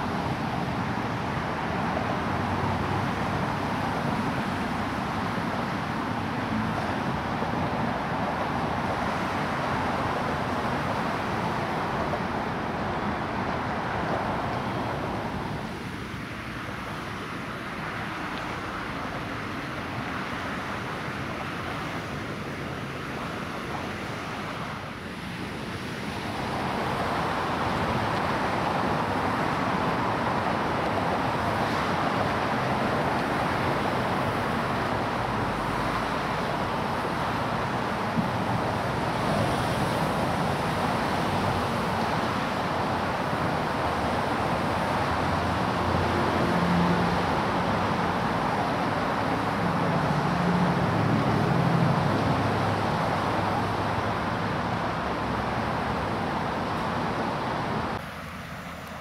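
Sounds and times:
heavy vehicle engine hum: 0.0 - 59.0
road traffic passing: 0.0 - 59.0.

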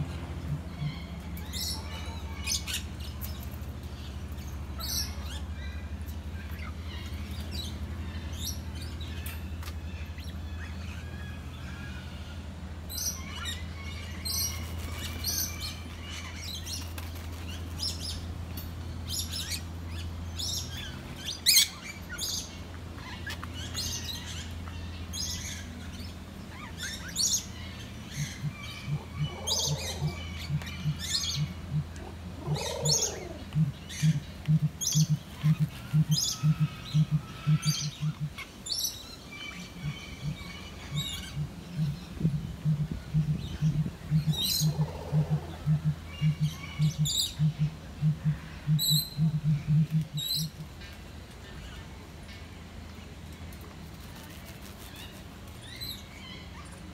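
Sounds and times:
low bending calls: 0.0 - 3.0, 26.8 - 50.6
birds chirping and calling: 0.0 - 56.9
steady low hum: 0.0 - 56.9
regular low pulses: 28.2 - 38.5, 39.7 - 50.6.

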